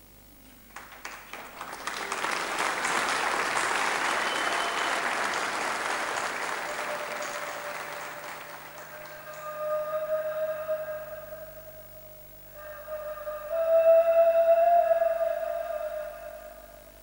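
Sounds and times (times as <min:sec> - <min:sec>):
audience applauding: 0:00.6 - 0:09.8.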